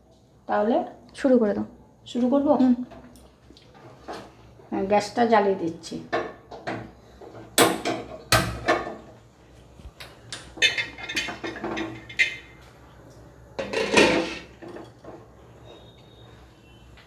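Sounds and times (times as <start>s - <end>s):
glass lid and metal pan clattering: 13.6s - 15.0s
pan scraping on burner grate: 13.6s - 15.2s.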